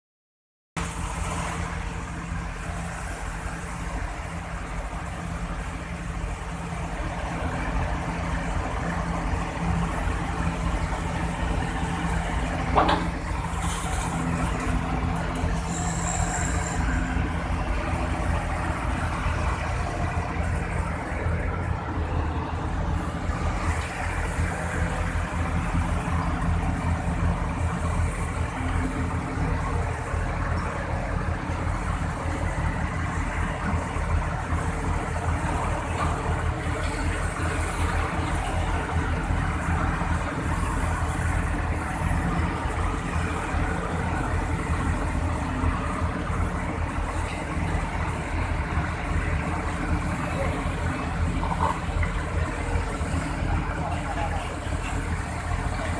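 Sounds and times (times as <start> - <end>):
excavator diesel engine running: 0.8 - 55.9.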